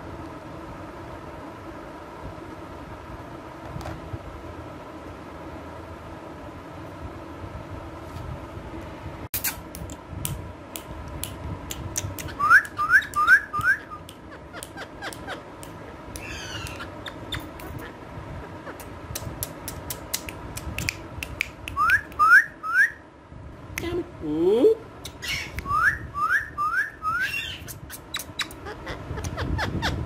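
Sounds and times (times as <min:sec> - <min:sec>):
parakeets chirping: 0:12.2 - 0:18.9, 0:25.1 - 0:30.0
wavering bird call: 0:16.2 - 0:18.8
sharp clicks: 0:19.1 - 0:22.2.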